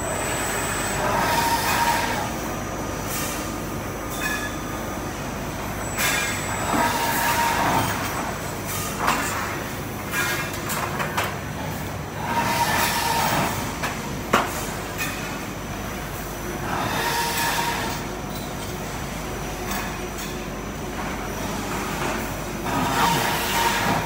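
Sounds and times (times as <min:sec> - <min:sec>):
pipe scraping through rollers: 0:12.2 - 0:13.6, 0:22.0 - 0:24.0.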